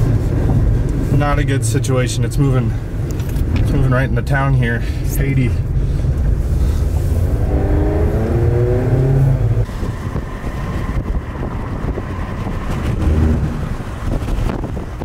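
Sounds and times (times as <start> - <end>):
road noise: 0.0 - 15.0
car engine accelerating: 6.1 - 15.0.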